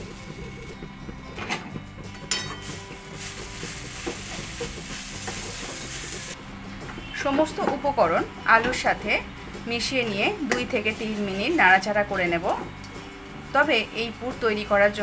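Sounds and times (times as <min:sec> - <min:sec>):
food sizzling: 0:00.0 - 0:00.9, 0:02.2 - 0:06.6, 0:09.9 - 0:12.5.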